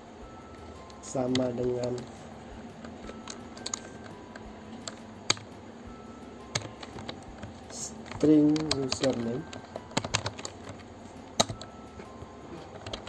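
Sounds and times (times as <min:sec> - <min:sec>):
computer keyboard key clicks: 0:06.5 - 0:10.8, 0:11.4 - 0:11.7.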